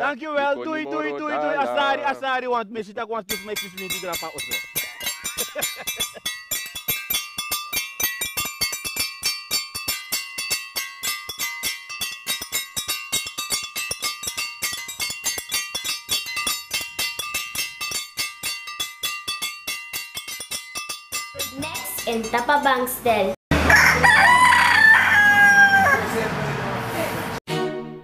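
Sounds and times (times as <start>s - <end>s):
ringing high tones: 3.3s - 22.7s.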